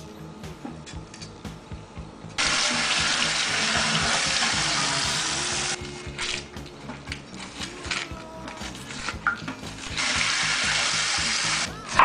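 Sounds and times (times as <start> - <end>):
tap water running into sink: 2.4 - 5.6, 9.1 - 11.7.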